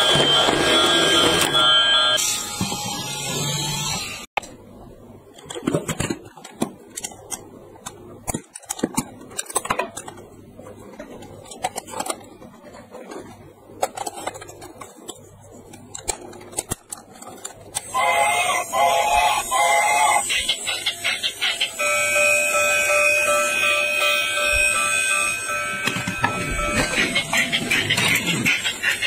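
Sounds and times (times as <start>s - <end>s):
toy train electronic tune: 0.0s - 4.0s, 17.8s - 29.0s
plastic toy trains clicking: 10.9s - 21.8s, 25.8s - 29.0s.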